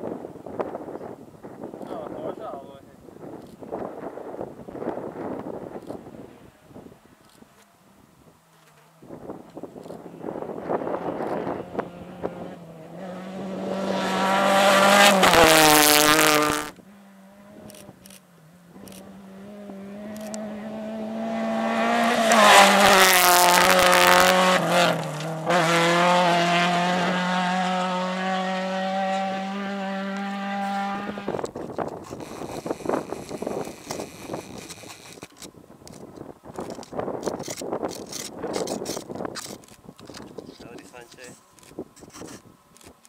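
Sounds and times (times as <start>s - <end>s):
rally cars passing: 8.4s - 34.8s.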